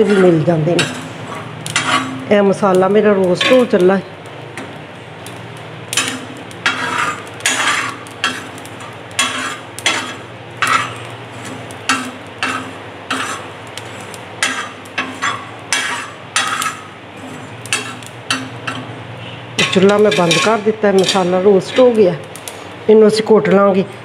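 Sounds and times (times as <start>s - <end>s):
spoon scraping iron pan: 0.0s - 2.3s, 3.3s - 3.8s, 5.9s - 18.9s, 19.6s - 22.0s.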